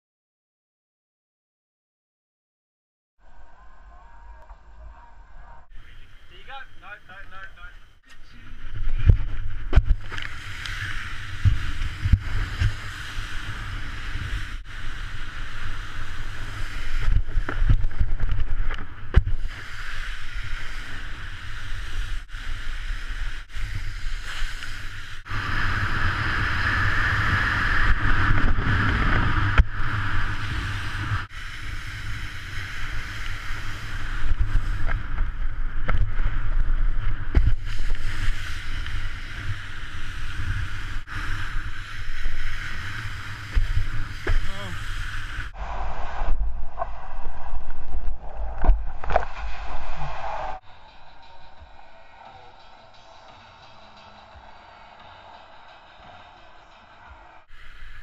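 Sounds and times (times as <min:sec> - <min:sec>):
wind rumble on microphone: 0:08.4 - 0:52.5
water spray hissing: 0:10.0 - 0:18.4, 0:19.3 - 0:28.4, 0:29.8 - 0:35.4, 0:37.4 - 0:46.3, 0:57.4 - 0:58.0.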